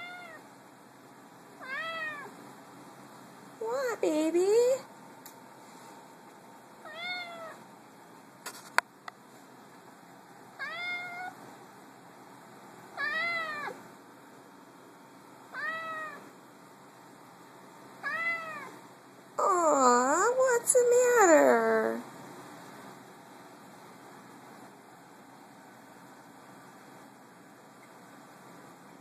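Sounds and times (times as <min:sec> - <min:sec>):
cat meowing: 0:00.0 - 0:00.4, 0:01.6 - 0:02.3, 0:06.8 - 0:07.6, 0:10.6 - 0:11.4, 0:13.0 - 0:13.8, 0:15.5 - 0:16.2, 0:18.0 - 0:18.8.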